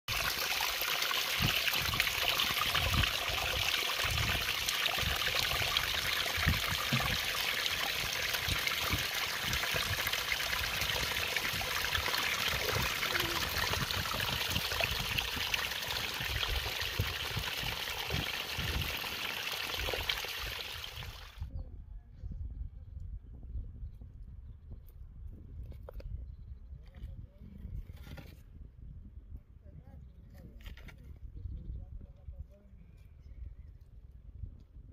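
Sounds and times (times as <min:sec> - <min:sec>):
stream splashing over rocks: 0:00.1 - 0:21.4.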